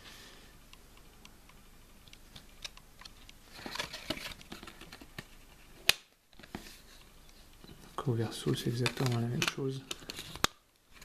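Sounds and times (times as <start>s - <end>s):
cardboard rustling: 3.4s - 7.8s
plastic disc clicks: 8.6s - 11.0s.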